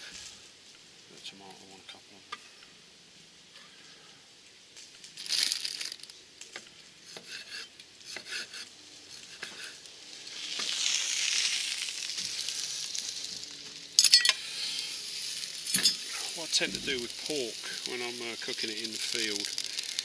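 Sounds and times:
sausages sizzling in a pan: 8.0s - 20.0s.

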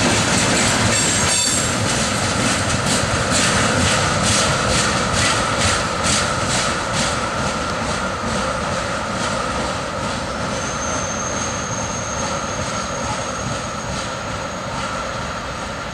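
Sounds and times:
train rumble: 0.0s - 15.9s
thin high whistle-like tone: 10.6s - 14.0s.

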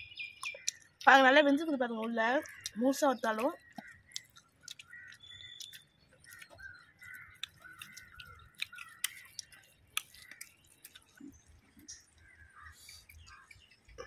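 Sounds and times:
person chewing: 0.4s - 1.0s, 2.4s - 14.0s
wet mouth clicks and smacks: 0.4s - 1.1s, 2.5s - 12.2s.

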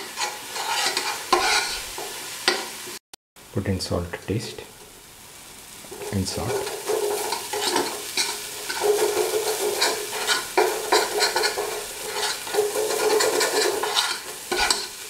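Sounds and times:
spatula scraping metal pan: 0.0s - 2.7s, 5.9s - 15.0s
paste sizzling in oil: 0.0s - 3.0s, 4.2s - 15.0s.

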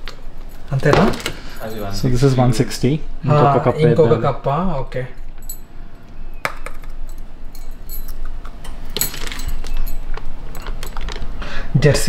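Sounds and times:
glass and kitchenware clinking: 6.5s - 11.2s.

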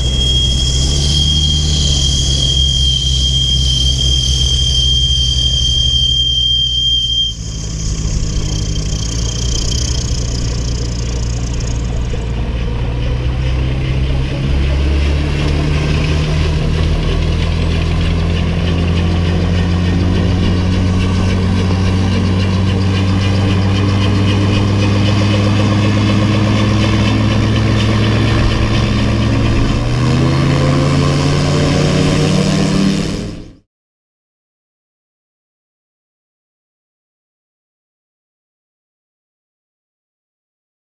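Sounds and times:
propeller engine running: 0.0s - 6.0s, 7.3s - 33.6s
high steady whine: 0.0s - 33.6s.

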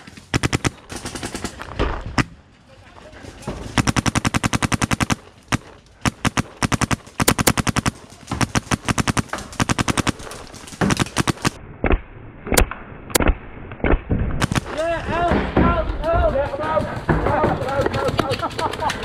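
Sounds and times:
paintball marker firing: 3.8s - 11.6s.

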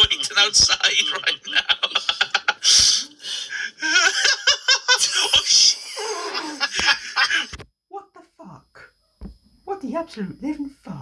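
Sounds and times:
loud breathy laughter: 0.0s - 7.6s.

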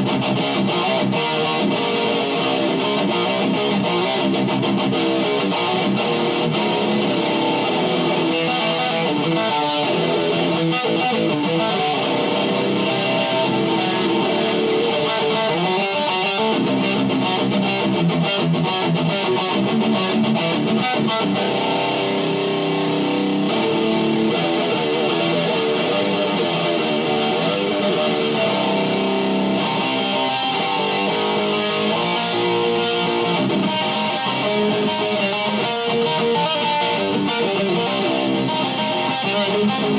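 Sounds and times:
electric guitar playing metal riffs: 0.0s - 39.9s.

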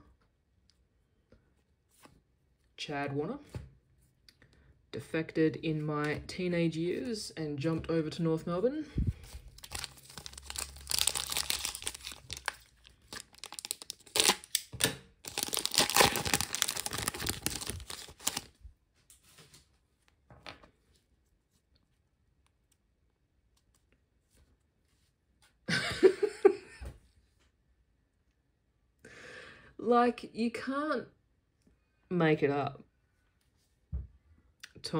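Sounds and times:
plastic wrapper crinkling and tearing: 9.2s - 18.6s.

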